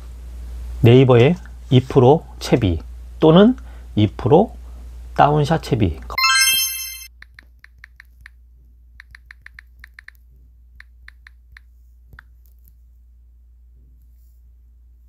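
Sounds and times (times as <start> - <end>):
phone keyboard ticks: 9.0 - 10.2.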